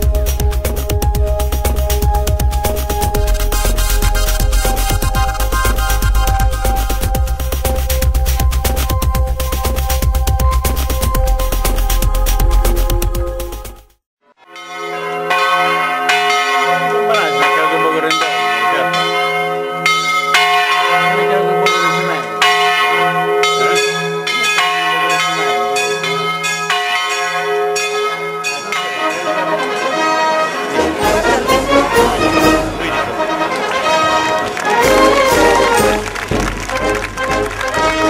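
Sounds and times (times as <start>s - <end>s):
church bells pealing: 14.4s - 38.0s.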